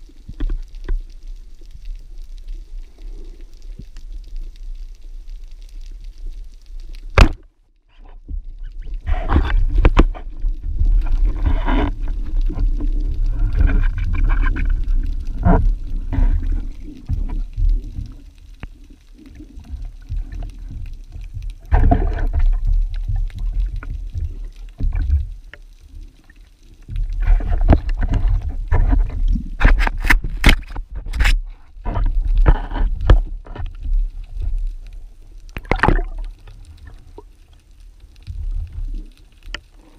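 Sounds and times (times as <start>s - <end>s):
knocks underwater: 7.1s - 7.5s, 9.1s - 10.3s, 27.2s - 33.7s, 35.6s - 36.3s
underwater rushing gurgling water: 8.9s - 30.8s, 31.8s - 37.5s.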